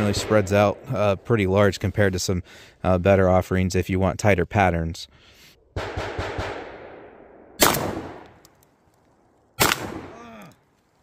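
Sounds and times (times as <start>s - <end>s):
shotgun blasts echoing: 0.0s - 0.9s, 5.8s - 8.3s, 9.6s - 10.2s.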